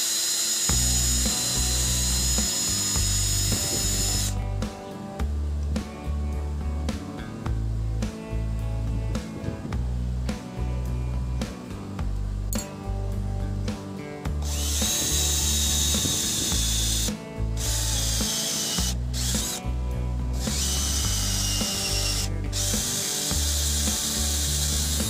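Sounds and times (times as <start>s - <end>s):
cordless drill whining: 0.0s - 4.4s, 14.4s - 19.6s, 20.4s - 25.0s
background music with bass line: 0.7s - 25.0s.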